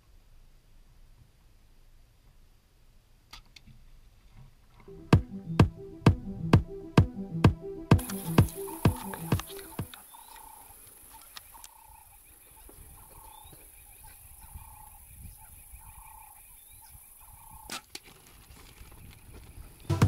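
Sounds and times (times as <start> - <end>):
bird calling: 8.0 - 17.7.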